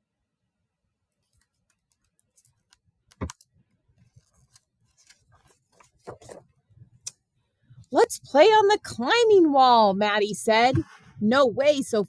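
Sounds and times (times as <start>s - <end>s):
book pages rustling: 1.1s - 7.0s.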